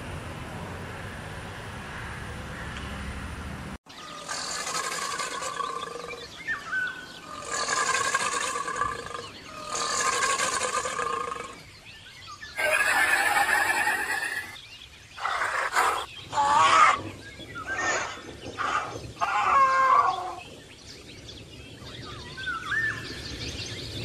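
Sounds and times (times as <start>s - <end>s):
roaring animal calls: 4.0s - 11.7s, 12.6s - 14.6s, 15.2s - 20.5s.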